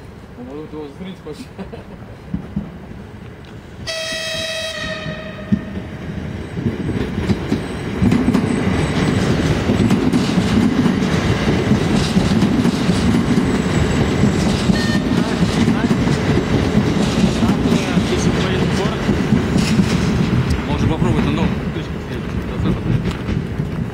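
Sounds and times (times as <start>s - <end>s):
train wheels rumbling on rails: 0.0s - 23.9s
train horn blast: 3.8s - 5.8s.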